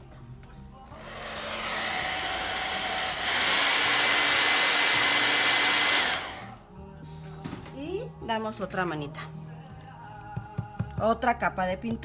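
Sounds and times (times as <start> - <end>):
hair dryer blowing: 0.9 - 6.6.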